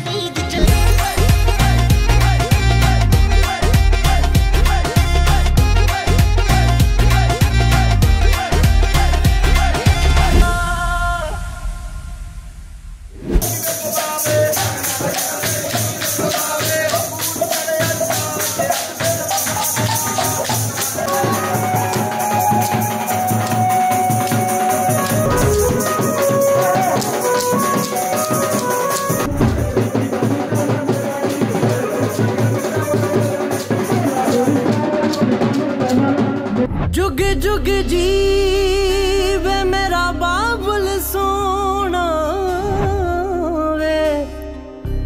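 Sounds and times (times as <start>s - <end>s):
upbeat instrumental music: 0.0s - 11.4s, 13.4s - 36.7s
fast percussion and rattles: 13.4s - 36.7s.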